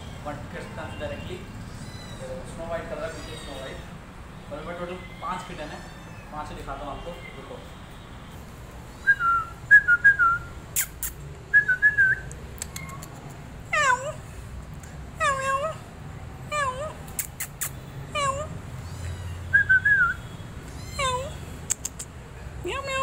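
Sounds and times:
kittens mewing: 0:01.6 - 0:06.4, 0:12.6 - 0:14.4, 0:15.2 - 0:19.7, 0:20.6 - 0:23.0.

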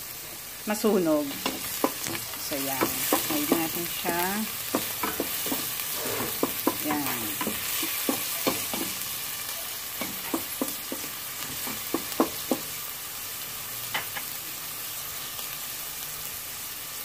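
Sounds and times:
garlic and onion sizzling in oil: 0:00.0 - 0:17.0
wooden spatula knocking on pot: 0:01.4 - 0:09.0, 0:10.0 - 0:12.7.

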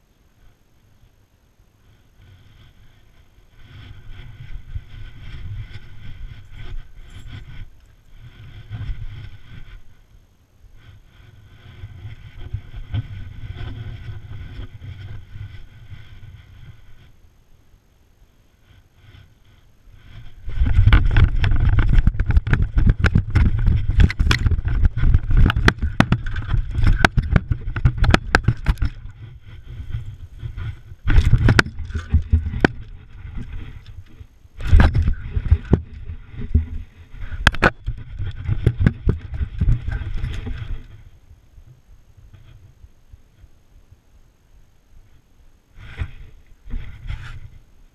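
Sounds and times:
scraping over gravel: 0:19.1 - 0:41.1
camera jostling thumps and knocks: 0:20.5 - 0:29.3, 0:30.4 - 0:34.0, 0:34.6 - 0:40.8.

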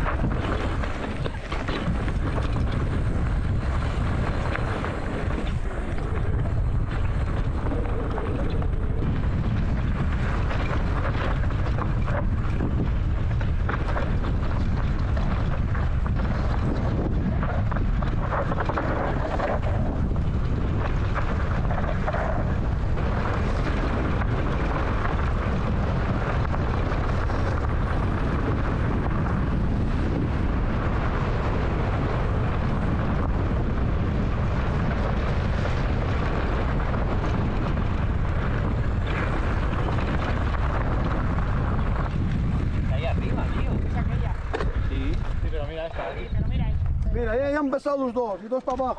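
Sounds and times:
wind noise on microphone: 0:00.0 - 0:48.0.

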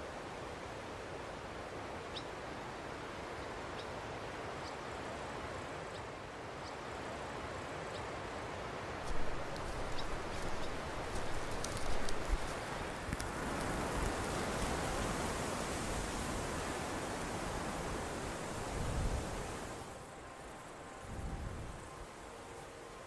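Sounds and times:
wind-like hiss: 0:00.0 - 0:23.0
rustling: 0:09.0 - 0:15.1
crackles: 0:09.0 - 0:15.2.

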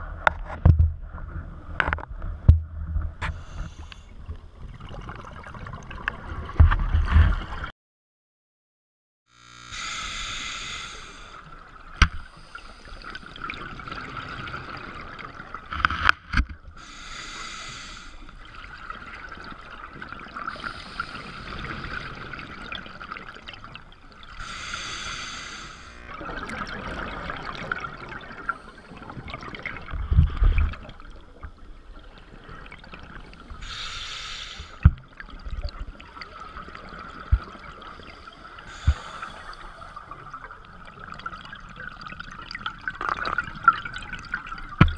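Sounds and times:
exhaled bubbles hissing: 0:03.2 - 0:04.1, 0:09.6 - 0:15.5, 0:16.8 - 0:31.3, 0:32.0 - 0:44.7
steady underwater hiss: 0:03.2 - 0:04.3, 0:09.4 - 0:15.5, 0:16.7 - 0:41.5.

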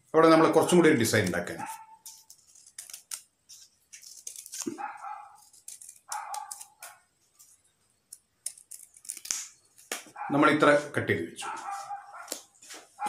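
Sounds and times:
scissors snipping paper: 0:01.1 - 0:07.0, 0:08.1 - 0:10.0.

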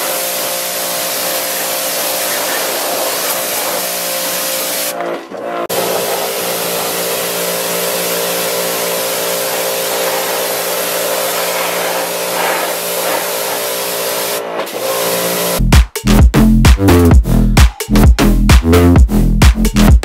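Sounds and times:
pressure washer spray hissing: 0:00.0 - 0:04.9, 0:05.7 - 0:15.6
washer motor humming: 0:00.0 - 0:15.6
electronic dance music: 0:01.4 - 0:20.0.

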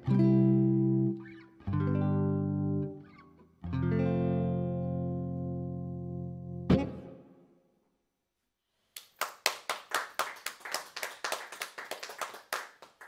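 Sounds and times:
electric guitar chord: 0:00.0 - 0:03.1, 0:03.7 - 0:07.4
people clapping: 0:08.9 - 0:13.0.

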